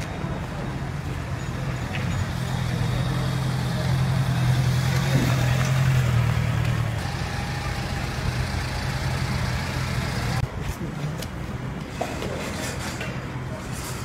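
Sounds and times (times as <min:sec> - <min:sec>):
vehicle engine humming: 0:00.0 - 0:10.7.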